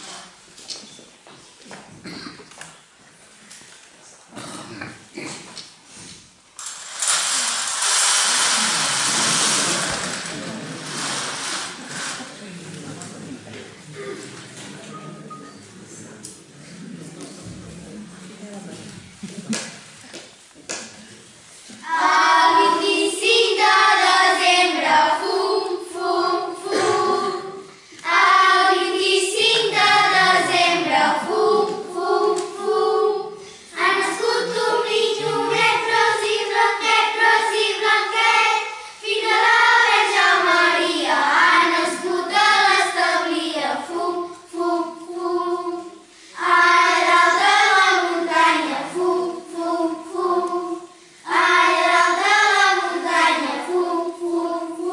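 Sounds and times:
children singing: 0:21.8 - 0:54.9.

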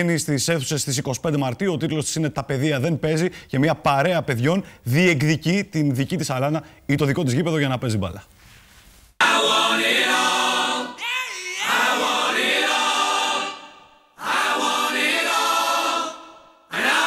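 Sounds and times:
choir singing held chords: 0:09.2 - 0:17.0.

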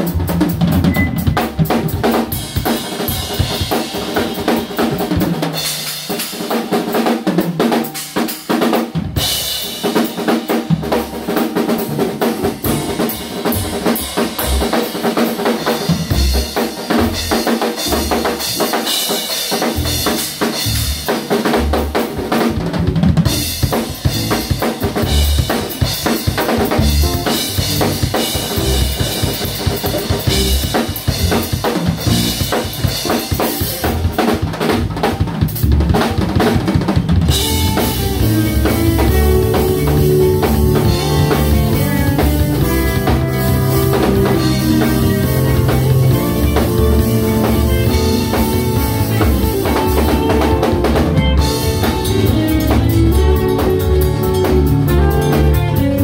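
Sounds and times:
jazz band playing: 0:00.0 - 0:56.0
jazz drum solo: 0:00.0 - 0:56.0.

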